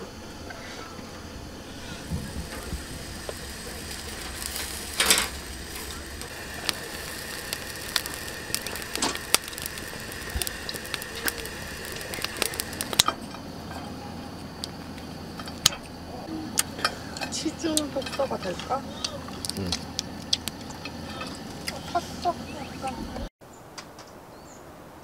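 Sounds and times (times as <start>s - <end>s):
food grilling with pops and crackles: 0.4s - 23.3s.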